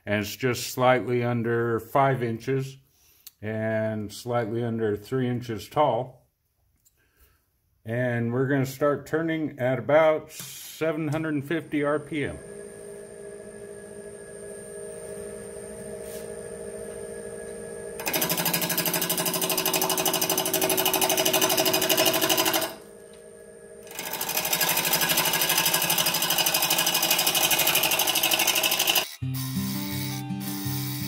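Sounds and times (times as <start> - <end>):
wood lathe motor running: 12.3 - 31.0
lathe tool cutting wood: 18.0 - 22.8, 23.8 - 31.0
music: 29.2 - 31.0.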